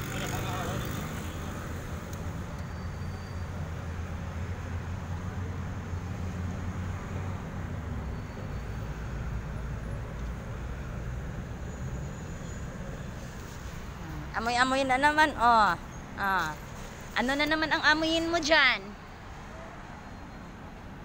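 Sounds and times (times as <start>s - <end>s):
low rumble of road traffic: 0.0s - 21.0s.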